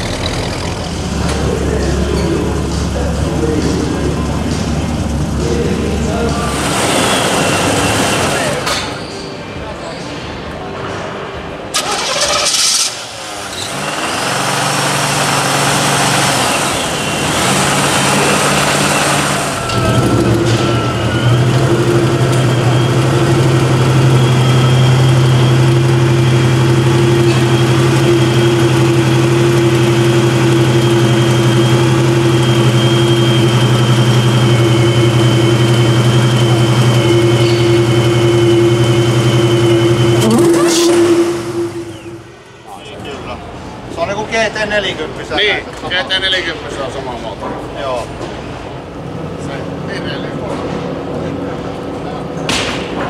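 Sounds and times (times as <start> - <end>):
car engine starting and idling: 0.0 - 9.0, 11.6 - 42.6.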